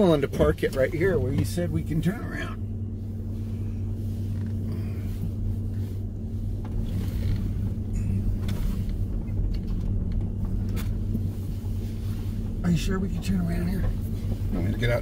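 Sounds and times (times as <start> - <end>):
truck engine running: 0.0 - 15.0
light knocks and rattles: 6.5 - 15.0.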